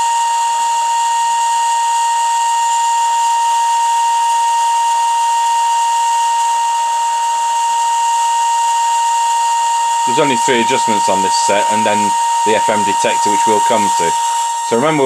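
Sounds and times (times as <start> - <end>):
steady test tone: 9.1 - 15.0
radio hiss: 10.0 - 15.0.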